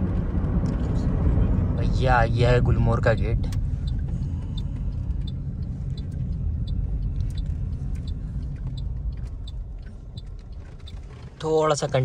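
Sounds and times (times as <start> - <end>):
car engine and tyres rumbling: 0.0 - 12.0
faint light ticking: 3.2 - 11.1.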